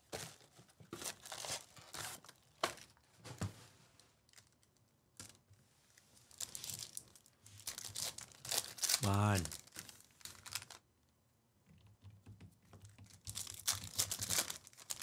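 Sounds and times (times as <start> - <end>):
wrappers tearing and crinkling: 0.2 - 3.0, 6.3 - 10.8, 13.1 - 15.0.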